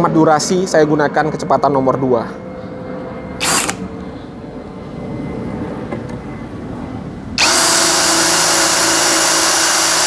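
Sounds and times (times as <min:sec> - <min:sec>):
low background hum: 0:00.0 - 0:09.9
drill cutting into steel plate: 0:03.4 - 0:03.8, 0:07.4 - 0:10.0.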